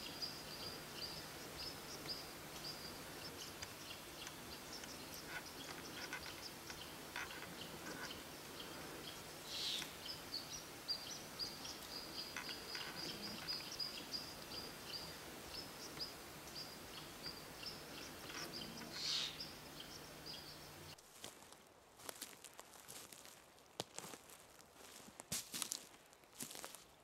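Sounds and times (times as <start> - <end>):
small bird chirping: 0.0 - 21.0.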